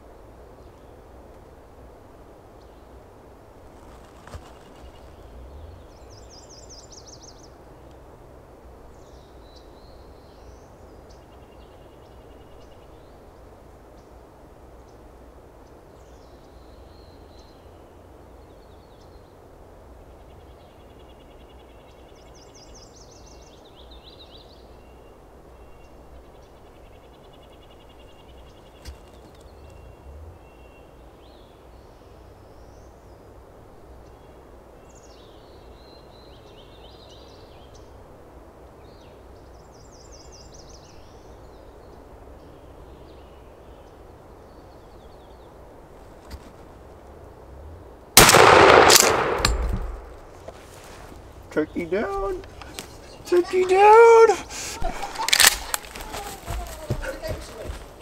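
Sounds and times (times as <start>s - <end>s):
faint outdoor background hiss: 0.0s - 58.0s
songbirds calling and trilling: 0.0s - 58.0s
sharp click: 48.2s - 50.2s.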